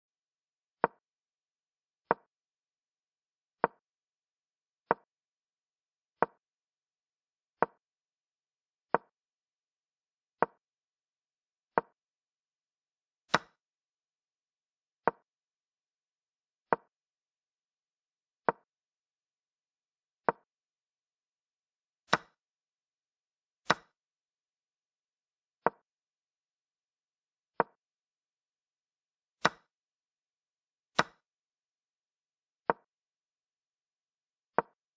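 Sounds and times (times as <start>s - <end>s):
wooden click of chess move: 0.8s - 1.0s, 3.6s - 3.8s, 13.3s - 13.6s, 15.1s - 15.3s, 27.6s - 27.8s, 34.6s - 34.8s.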